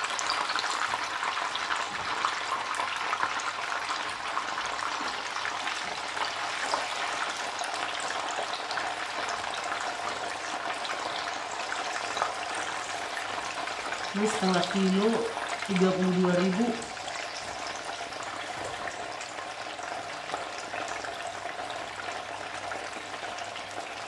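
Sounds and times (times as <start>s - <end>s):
food sizzling in hot oil: 0.0s - 24.0s.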